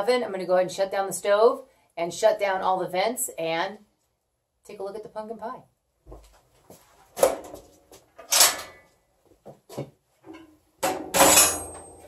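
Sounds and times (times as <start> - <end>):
metal clanks and scrapes of stove: 8.2 - 8.8.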